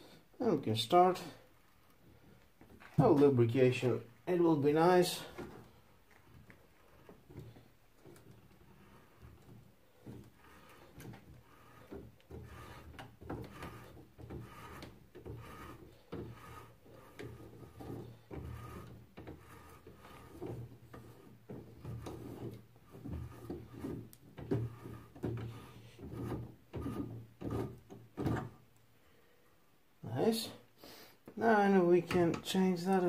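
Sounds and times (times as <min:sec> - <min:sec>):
threading die rasping on metal: 0:06.8 - 0:28.0.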